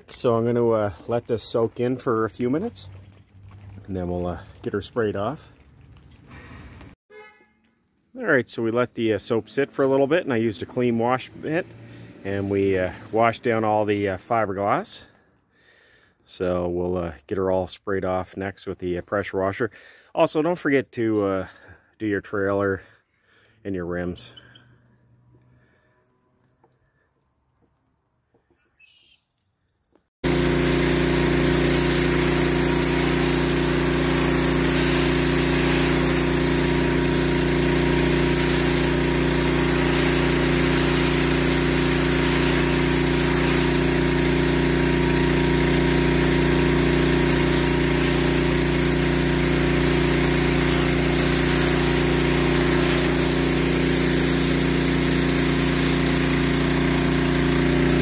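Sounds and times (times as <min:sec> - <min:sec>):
pressure washer engine humming: 0:00.0 - 0:06.9, 0:08.2 - 0:14.4, 0:30.2 - 0:58.0
high-pressure water spray hissing: 0:30.2 - 0:58.0.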